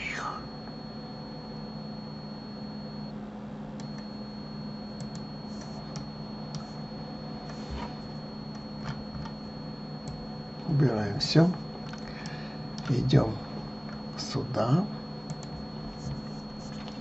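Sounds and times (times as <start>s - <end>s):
low electrical hum: 0.0s - 17.0s
thin high whine: 0.0s - 17.0s
computer mouse clicks: 15.3s - 16.8s.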